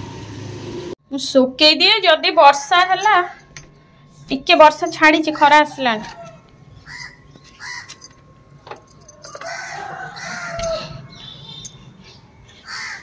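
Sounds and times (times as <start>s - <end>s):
rooster crowing: 5.5s - 8.0s, 9.1s - 11.6s.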